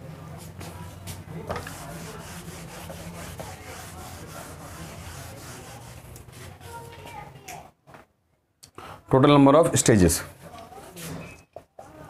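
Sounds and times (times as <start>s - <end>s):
eraser scrubbing a whiteboard: 0.4s - 6.9s.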